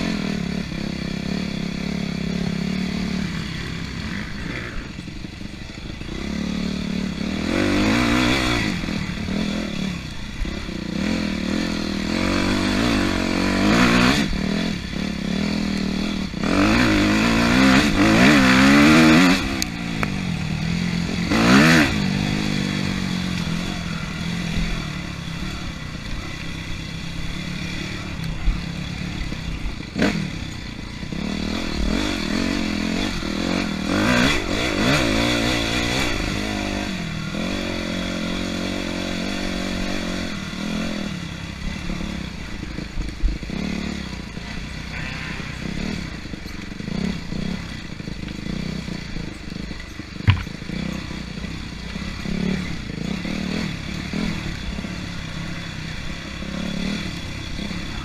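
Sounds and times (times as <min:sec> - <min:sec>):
dirt bike engine revving: 0:00.0 - 0:58.0
bike clattering over rough trail: 0:46.0 - 0:53.2.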